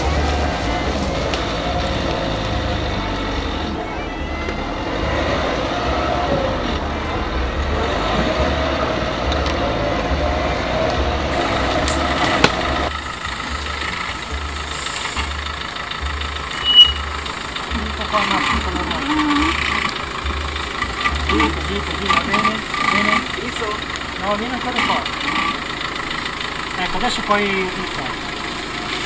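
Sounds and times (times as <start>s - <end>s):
engine running at low revs: 0.0s - 29.0s
short loud squeak: 16.6s - 17.1s.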